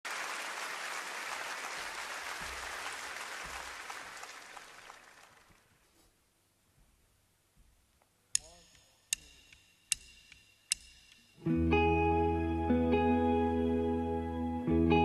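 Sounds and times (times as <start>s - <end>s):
audience applause: 0.0s - 5.8s.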